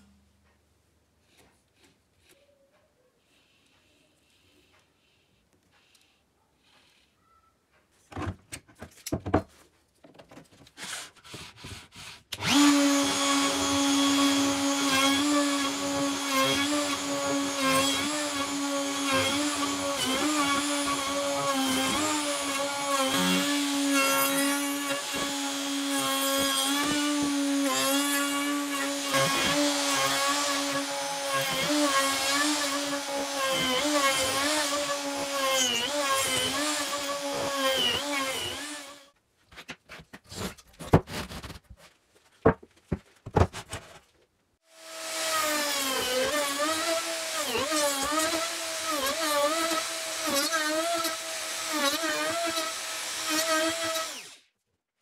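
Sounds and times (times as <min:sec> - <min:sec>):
power tool motor running: 0:12.4 - 0:39.1.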